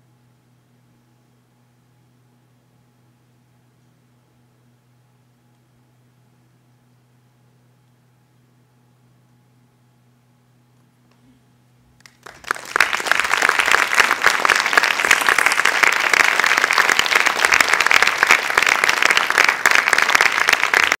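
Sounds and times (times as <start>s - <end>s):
faint electrical hum: 0.0s - 21.0s
audience applause: 12.0s - 21.0s.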